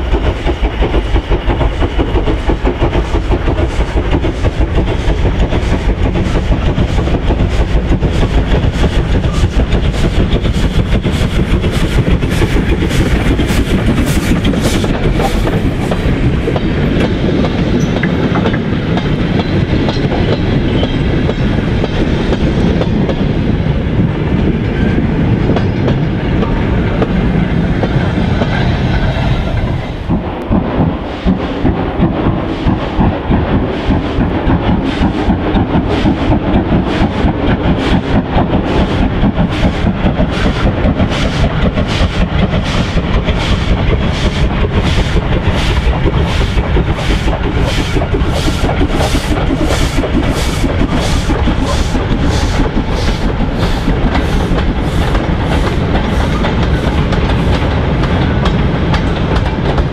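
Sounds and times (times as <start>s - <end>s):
steam engine exhaust chuffs: 30.8s - 59.9s.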